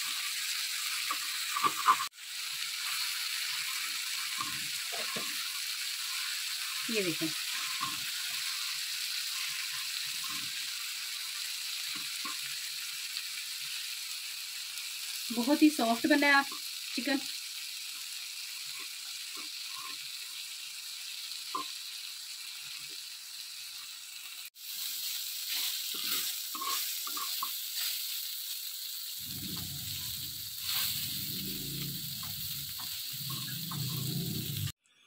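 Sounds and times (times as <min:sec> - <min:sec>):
chicken sizzling on iron griddle: 0:00.0 - 0:34.8
metal spatula scraping and tapping: 0:01.1 - 0:02.1, 0:25.9 - 0:27.5, 0:32.2 - 0:34.7.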